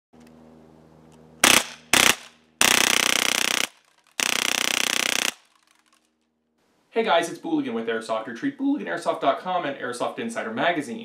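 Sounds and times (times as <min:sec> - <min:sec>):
airsoft gun firing bursts: 0:01.4 - 0:05.6.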